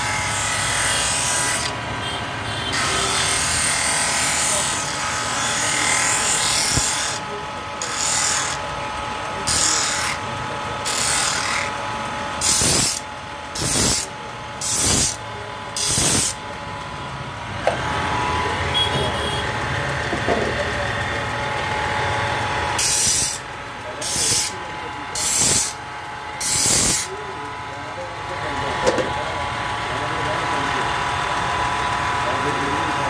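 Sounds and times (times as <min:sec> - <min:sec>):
sanding disc grinding wood: 0:02.8 - 0:07.2, 0:07.8 - 0:08.6, 0:09.4 - 0:10.2, 0:10.8 - 0:11.8, 0:12.4 - 0:15.2, 0:15.8 - 0:16.4, 0:22.6 - 0:25.8, 0:26.4 - 0:27.1.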